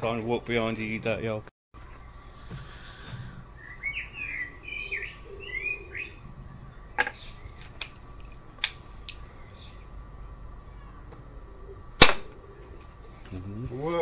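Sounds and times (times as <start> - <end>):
bird chirping: 1.8 - 7.8, 9.1 - 14.0
air pistol metallic clicks: 8.6 - 9.2.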